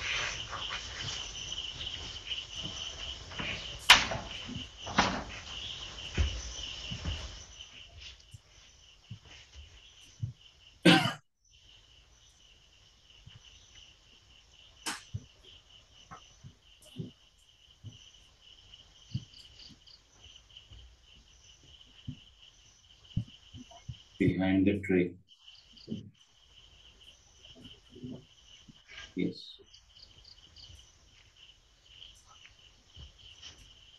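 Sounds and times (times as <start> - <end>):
crickets chirping: 0.0 - 33.9.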